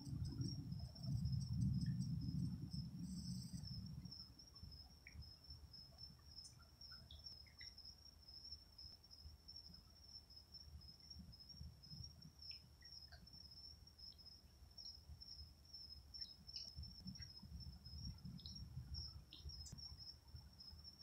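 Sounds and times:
faint low rumble: 0:00.0 - 0:08.5
crickets trilling: 0:00.0 - 0:21.0.

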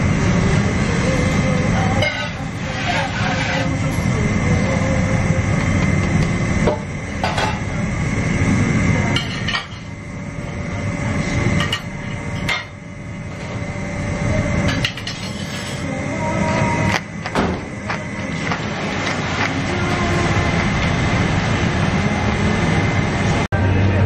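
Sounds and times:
thin steady whine: 0:00.0 - 0:24.0.

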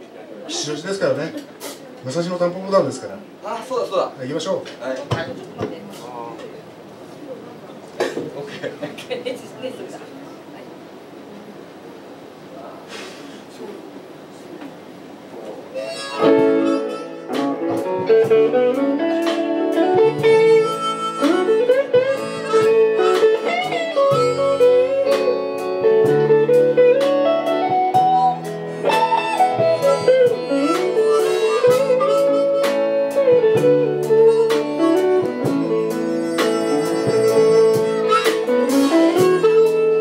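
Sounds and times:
live band playing: 0:00.0 - 0:07.2, 0:15.4 - 0:40.0
harmonica melody: 0:15.7 - 0:40.0.

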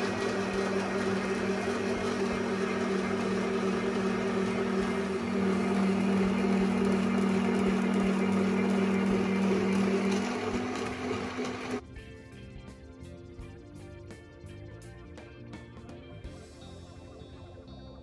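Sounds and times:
spiralizer motor humming: 0:00.0 - 0:11.8.

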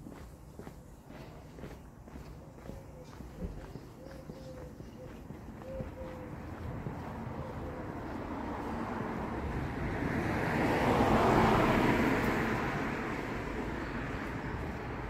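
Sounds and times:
car driving past: 0:07.0 - 0:15.0.

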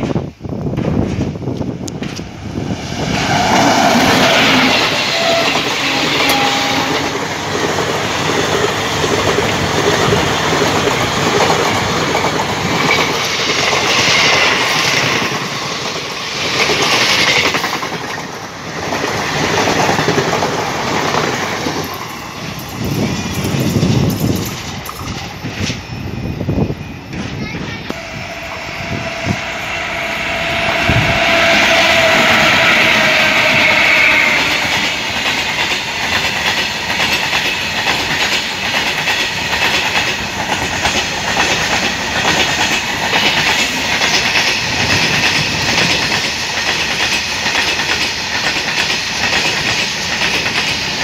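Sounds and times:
train wheels clattering over joints: 0:03.2 - 0:26.0, 0:31.4 - 0:51.0.

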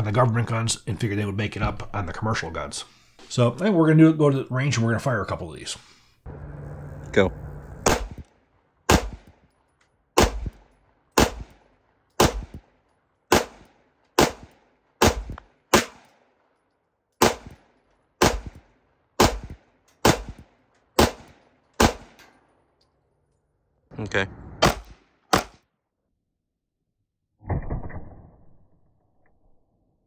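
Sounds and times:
pistol shots with echo: 0:07.8 - 0:08.2, 0:08.9 - 0:09.4, 0:10.2 - 0:12.7, 0:13.3 - 0:16.4, 0:17.2 - 0:22.3, 0:24.6 - 0:25.6.

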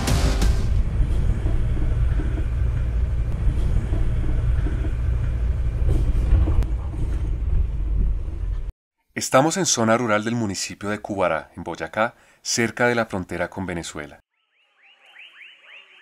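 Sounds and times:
vehicle driving on road: 0:00.6 - 0:08.7.

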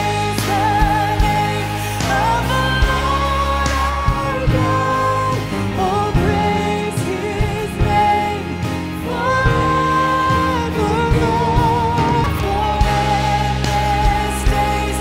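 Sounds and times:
band playing drums bass guitars: 0:00.0 - 0:15.0
person singing lead vocal: 0:00.0 - 0:15.0.

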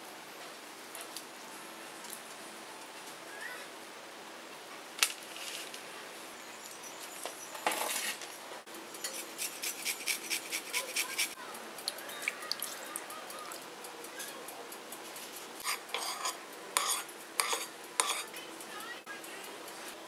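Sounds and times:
lemon rind grating on metal grater: 0:09.0 - 0:11.4, 0:14.2 - 0:18.8.

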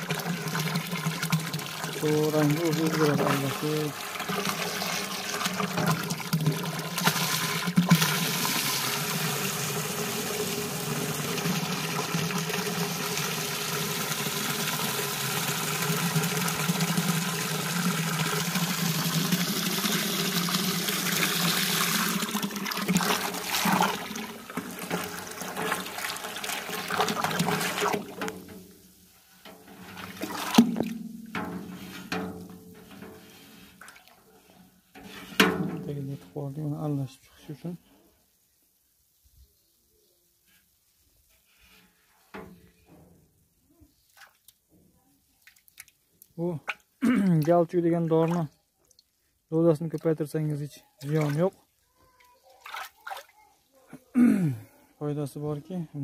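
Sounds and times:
water churning in steel drum: 0:00.0 - 0:28.8, 0:29.4 - 0:34.0.

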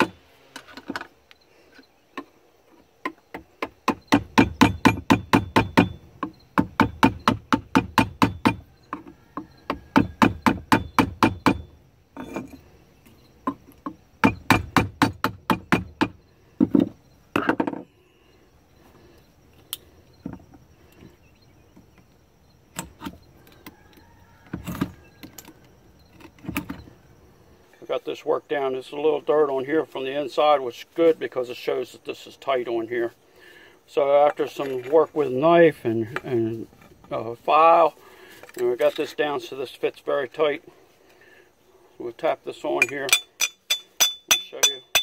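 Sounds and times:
hammer striking chisel: 0:03.6 - 0:08.7, 0:09.7 - 0:11.7, 0:42.8 - 0:45.0.

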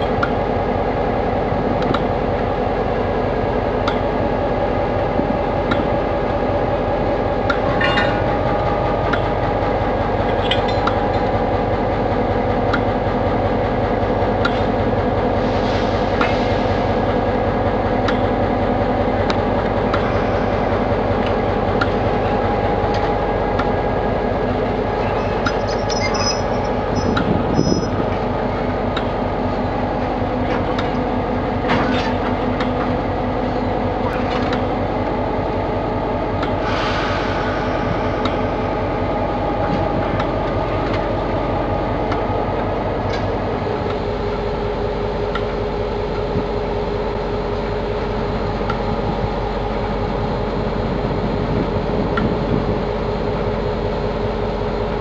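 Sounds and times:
diesel locomotive running: 0:00.0 - 0:55.0
high squeal: 0:25.2 - 0:28.0.

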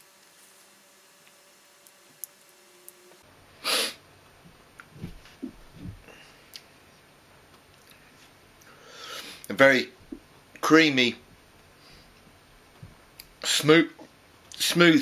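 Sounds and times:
sharp breath through the nose: 0:03.6 - 0:04.0, 0:08.7 - 0:09.5
soft lip and mouth sounds: 0:04.7 - 0:06.8, 0:07.5 - 0:08.8.

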